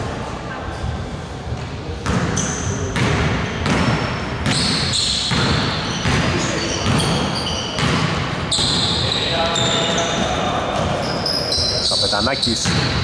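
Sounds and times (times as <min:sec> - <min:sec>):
sneaker squeaks on floor: 0:02.0 - 0:13.0
basketball bouncing on hardwood: 0:07.8 - 0:08.7.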